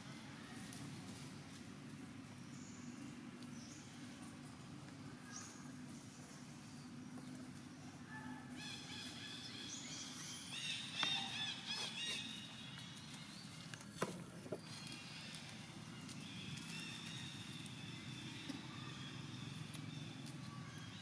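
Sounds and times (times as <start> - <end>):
animal chirps and squeaks: 8.6 - 12.6.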